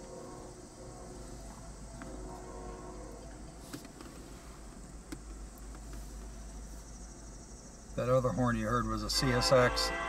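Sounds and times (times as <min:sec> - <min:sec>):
distant locomotive horn: 0:00.0 - 0:03.4, 0:09.0 - 0:10.0.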